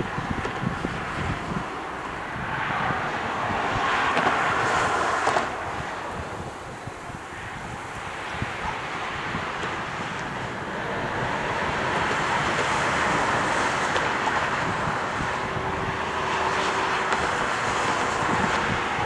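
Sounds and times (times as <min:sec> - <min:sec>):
airliner jet engines rushing: 0:00.0 - 0:19.0.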